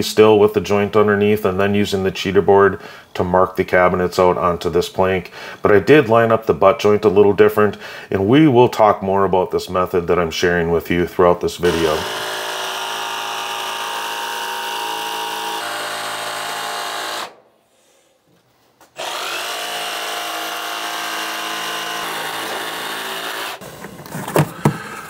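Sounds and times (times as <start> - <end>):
jigsaw cutting vinyl plank: 11.6 - 17.4, 19.0 - 25.0.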